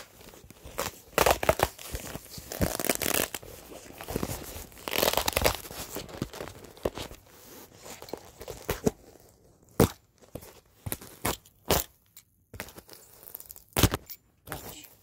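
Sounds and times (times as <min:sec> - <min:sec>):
packaging tearing and crinkling: 0:00.0 - 0:07.2.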